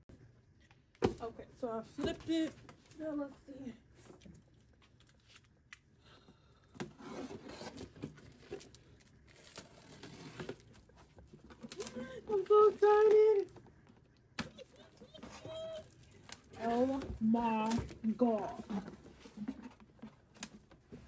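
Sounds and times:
cardboard scraping and crinkling: 6.8 - 13.5, 14.8 - 21.0.

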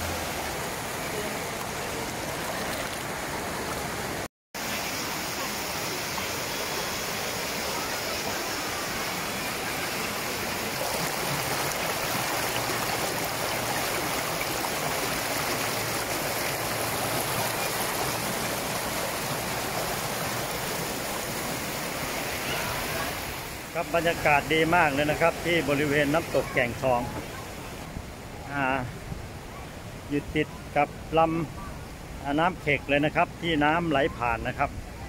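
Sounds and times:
river water rushing over rocks: 0.0 - 35.0.

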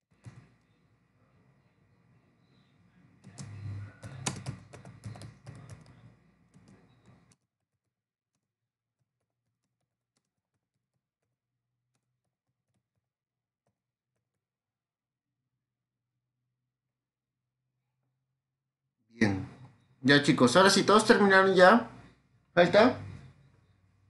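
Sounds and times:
keyboard typing: 3.2 - 7.4.

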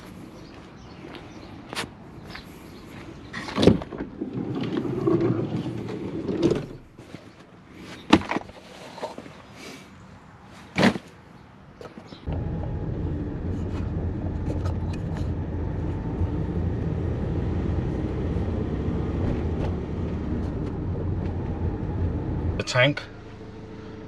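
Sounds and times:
van driving drone: 12.3 - 24.0.

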